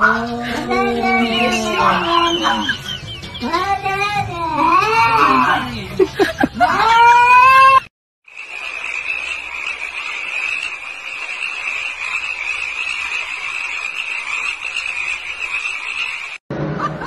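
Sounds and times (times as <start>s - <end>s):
shrill night chorus of animals: 0.0s - 3.6s, 6.6s - 16.4s.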